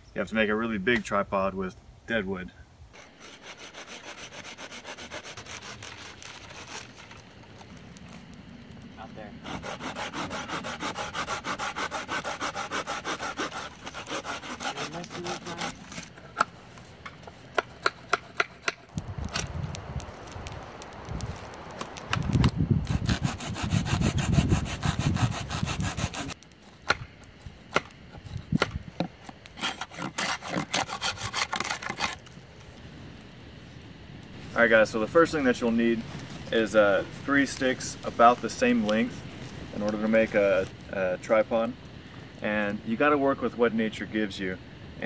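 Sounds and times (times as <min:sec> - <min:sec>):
saw cutting branch: 0:03.0 - 0:08.1, 0:09.4 - 0:19.7, 0:20.4 - 0:32.4, 0:34.4 - 0:40.8
low rumbling: 0:18.9 - 0:26.3.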